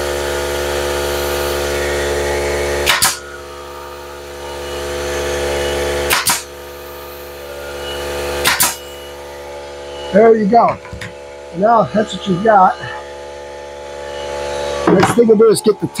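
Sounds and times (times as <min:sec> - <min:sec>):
steady hum: 0:00.0 - 0:16.0
nail gun firing into wood: 0:02.8 - 0:03.2, 0:06.0 - 0:06.5, 0:08.4 - 0:08.9.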